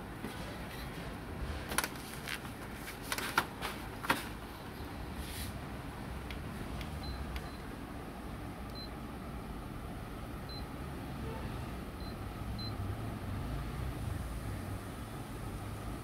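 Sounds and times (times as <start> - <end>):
steady low hum: 3.8 - 16.0.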